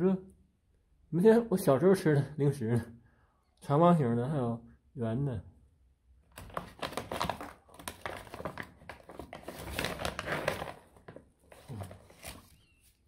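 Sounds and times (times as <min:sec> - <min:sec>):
plastic bag crinkling: 0:06.3 - 0:12.7.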